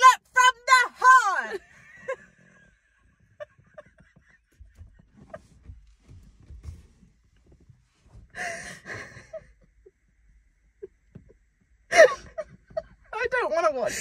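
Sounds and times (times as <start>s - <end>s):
women laughing: 1.5s - 5.6s, 11.9s - 13.0s.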